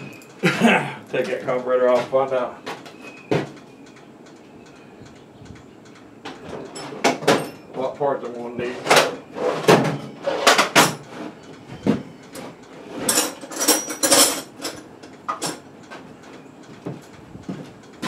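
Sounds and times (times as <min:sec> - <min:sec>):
metal hand tools clanking: 0:13.0 - 0:15.6.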